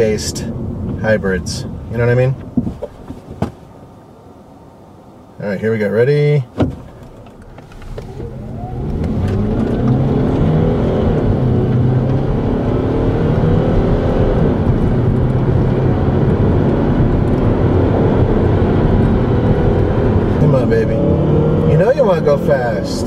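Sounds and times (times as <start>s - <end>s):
car engine accelerating: 6.7s - 23.0s.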